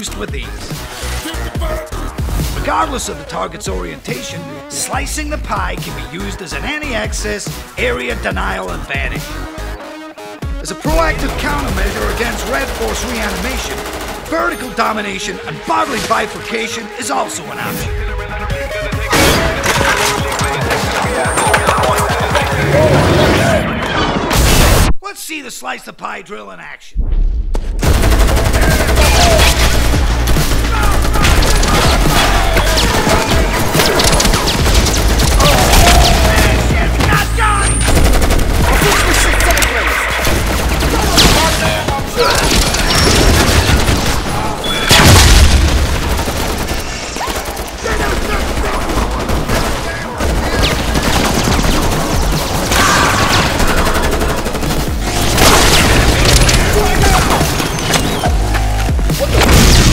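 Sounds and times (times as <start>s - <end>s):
rapid gunfire barrage: 10.7s - 16.6s, 27.8s - 59.9s
rapid rifle fire indoors: 11.1s - 14.4s, 27.8s - 58.2s.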